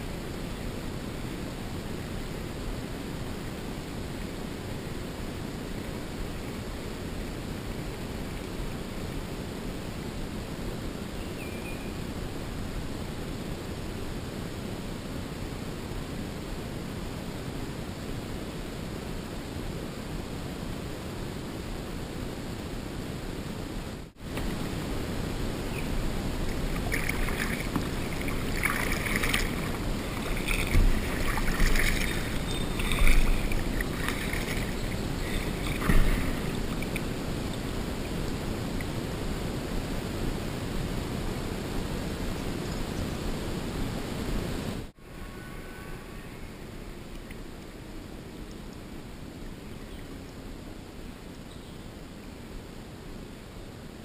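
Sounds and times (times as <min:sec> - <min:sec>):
water around kayak hull: 0:00.0 - 0:17.0, 0:24.2 - 0:43.1
paddle splashes and knocks: 0:26.4 - 0:37.1.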